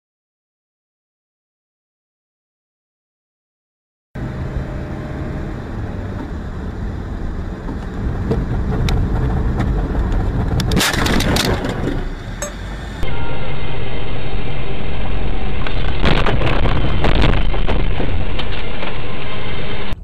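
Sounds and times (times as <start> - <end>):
car engine and road noise: 4.2 - 20.0
car crash impacts: 10.6 - 12.4, 15.6 - 18.9.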